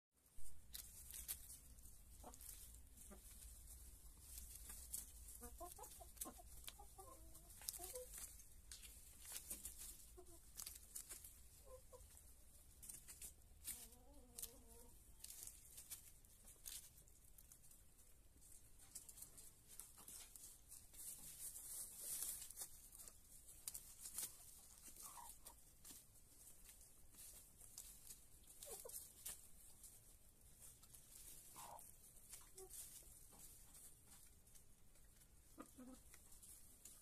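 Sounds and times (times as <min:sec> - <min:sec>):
hens clucking: 0:00.7 - 0:37.0.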